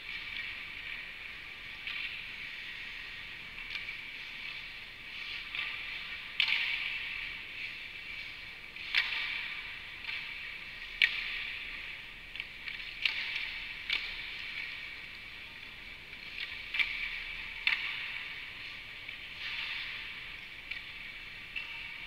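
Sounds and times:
hockey sticks clacking pucks: 8.8 - 15.3.

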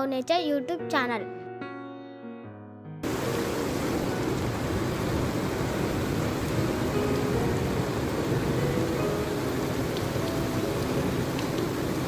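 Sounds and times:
heavy rain on wet ground: 3.0 - 12.0.

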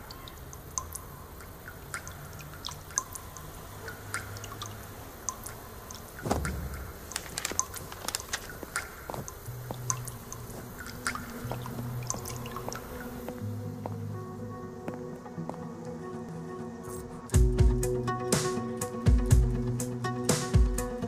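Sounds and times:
small clicks and ticks: 0.2 - 6.5, 7.1 - 12.8
soft low thump: 6.2 - 7.1.

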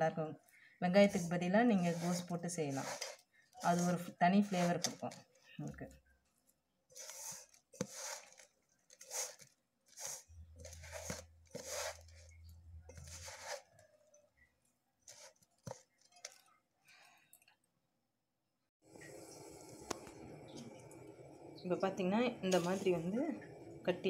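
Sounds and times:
hand squeezing cabbage crunchy rustle: 1.1 - 5.2, 6.9 - 13.8.

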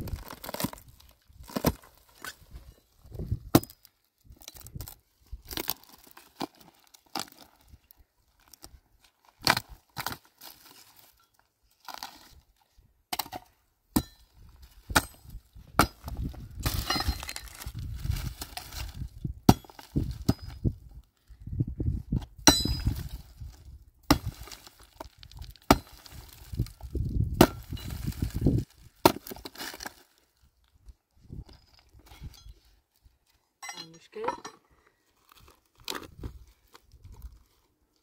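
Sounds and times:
pickaxe striking ground: 0.0 - 7.4, 9.4 - 11.3, 13.1 - 20.8, 22.2 - 30.0, 33.6 - 34.6
earth scraping and crumbling: 0.0 - 38.0.

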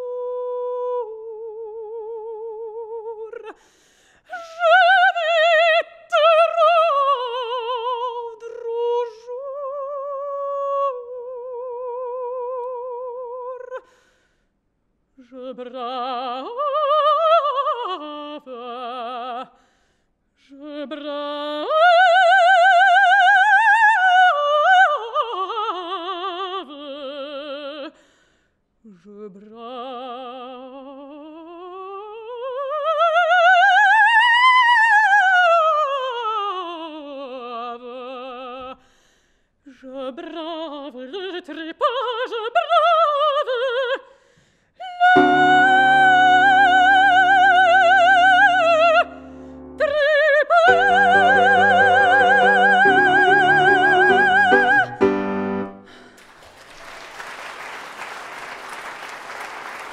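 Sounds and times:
woman singing opera: 0.0 - 14.0, 15.2 - 19.6, 20.4 - 28.0, 28.9 - 38.8, 39.7 - 44.1, 44.8 - 56.2
piano accompaniment: 45.2 - 56.1
audience applause: 55.9 - 59.9.

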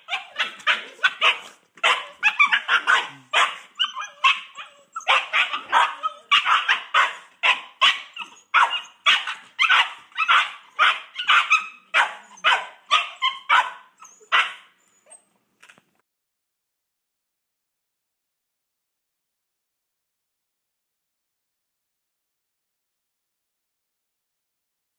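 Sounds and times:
puppies barking: 0.0 - 14.8.

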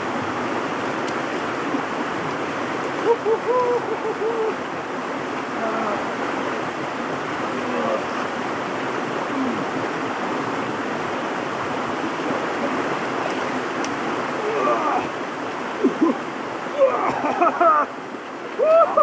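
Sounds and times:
river rushing over rapids: 0.0 - 19.0.

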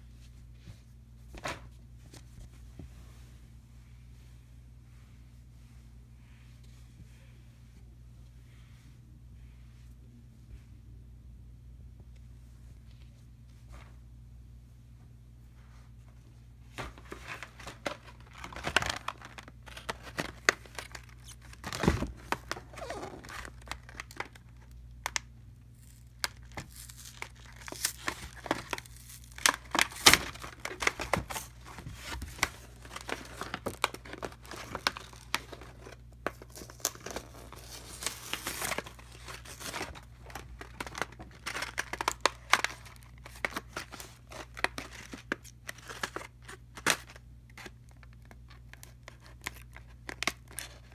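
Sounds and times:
plastic blister pack crinkling: 17.0 - 50.9
card tearing: 17.2 - 24.4, 25.8 - 47.7.

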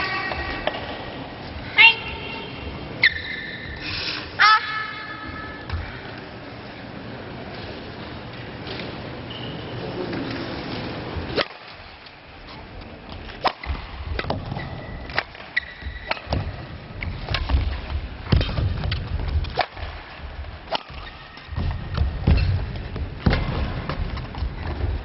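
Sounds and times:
shoe squeak: 3.0 - 3.8, 9.3 - 9.9, 14.6 - 16.1.

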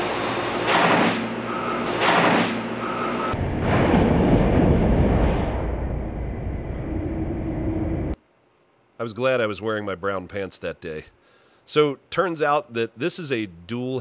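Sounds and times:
heavy muffled rumble: 3.4 - 8.2.

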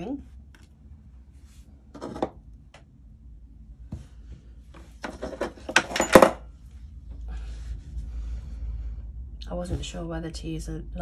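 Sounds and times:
metallic clinks and rattles: 5.1 - 6.4.

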